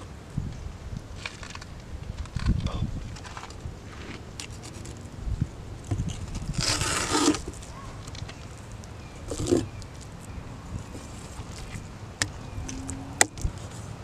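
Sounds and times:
knife scraping on wood: 5.9 - 7.6, 9.3 - 9.7.

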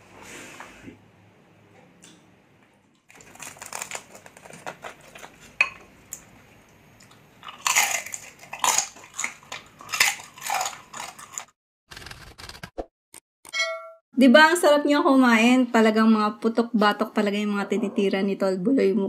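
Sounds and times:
chewing crispy skin: 3.1 - 6.3, 7.0 - 11.5.

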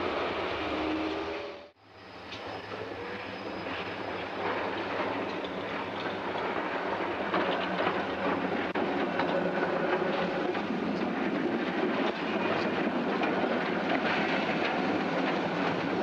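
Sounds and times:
tram rumbling: 0.0 - 16.0
wheels clicking on rails: 3.7 - 16.0.

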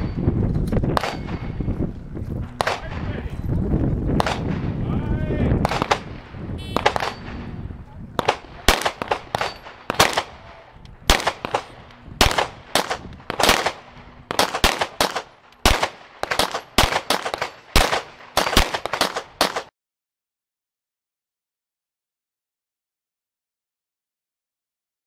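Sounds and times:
pistol shots: 0.9 - 1.6, 2.6 - 3.1, 4.2 - 4.7, 5.6 - 7.5, 8.2 - 10.5, 11.1 - 19.7.

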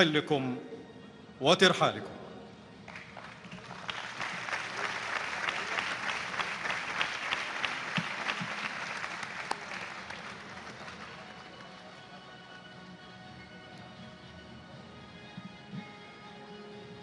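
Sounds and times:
audience applauding: 2.9 - 13.0.

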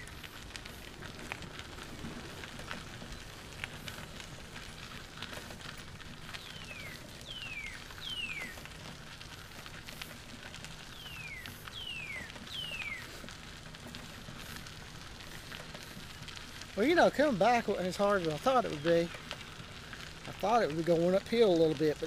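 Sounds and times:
tyres rolling on pavement: 0.0 - 22.0
songbird whistling: 6.4 - 8.5, 10.9 - 13.1.

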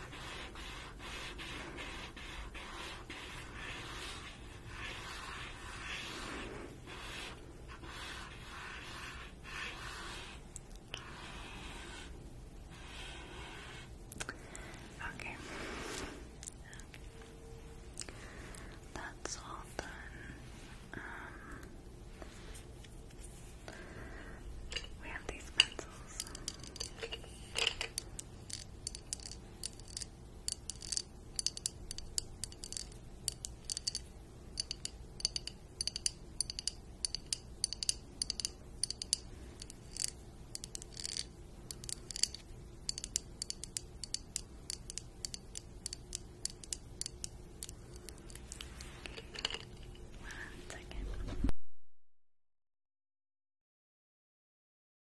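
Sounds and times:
pencils clicking together: 24.7 - 50.0.

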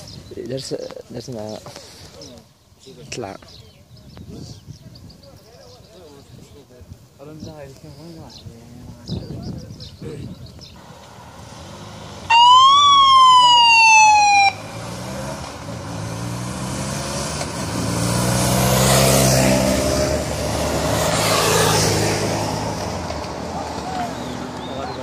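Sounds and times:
motorcycles riding past: 10.6 - 25.0
police siren whoop: 12.3 - 14.6.

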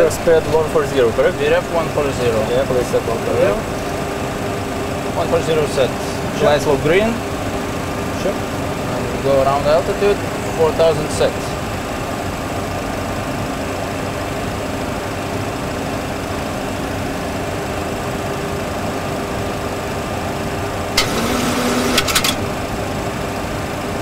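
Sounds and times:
engine and airflow hum: 0.0 - 24.0.

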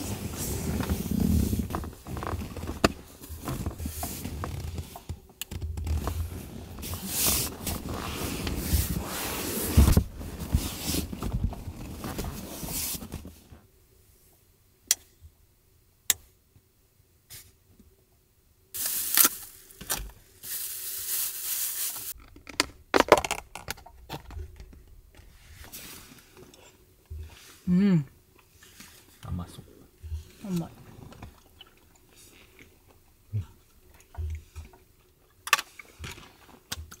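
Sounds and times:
clothes and bedding rustling: 0.0 - 5.1, 5.8 - 13.6.

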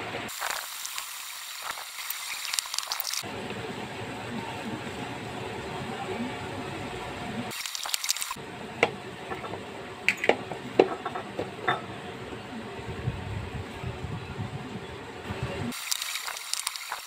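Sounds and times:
hissing rustle: 0.3 - 3.2, 15.7 - 17.0.

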